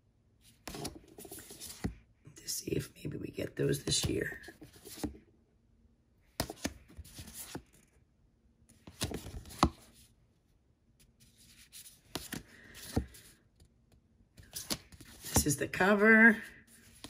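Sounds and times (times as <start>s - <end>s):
playing cards clicking and rustling: 0.6s - 2.0s, 3.9s - 5.2s, 6.4s - 7.9s, 8.7s - 10.0s, 11.5s - 13.3s, 14.4s - 15.6s.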